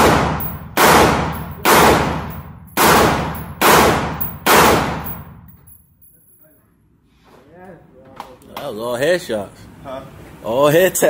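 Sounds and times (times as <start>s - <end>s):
gunshots echoing indoors: 0.0s - 5.7s.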